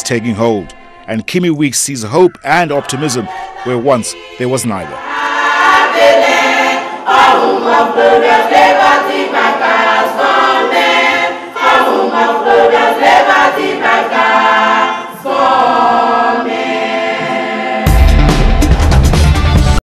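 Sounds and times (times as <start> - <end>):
choir singing without instruments: 0.0 - 19.0
loud music with heavy bass: 17.8 - 19.8.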